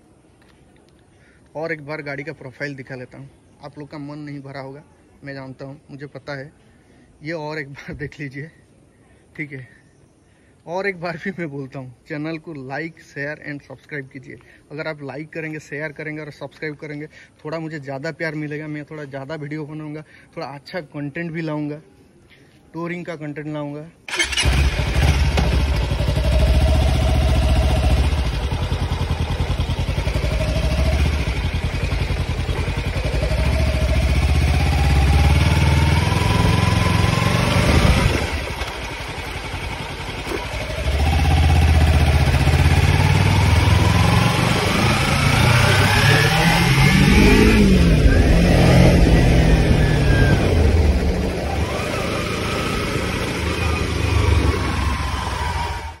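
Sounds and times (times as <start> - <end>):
motorcycle engine revving: 24.1 - 56.0.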